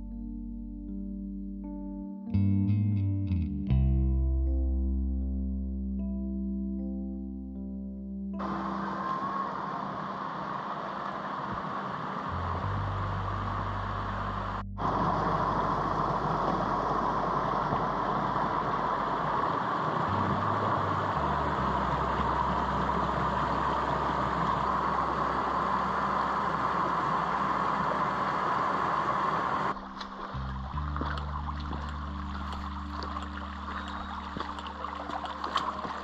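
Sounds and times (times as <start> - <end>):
creek rushing over rocks: 8.4 - 36.0.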